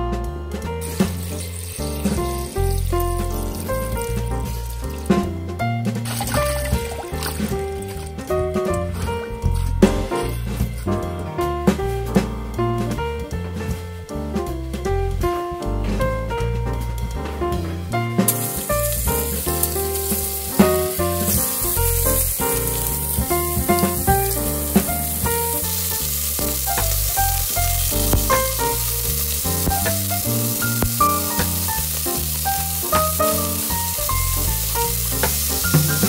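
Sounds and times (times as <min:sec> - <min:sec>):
background music: 0:00.0 - 0:36.0
meat sizzling in hot oil: 0:00.8 - 0:05.2, 0:05.9 - 0:08.3, 0:18.2 - 0:36.0.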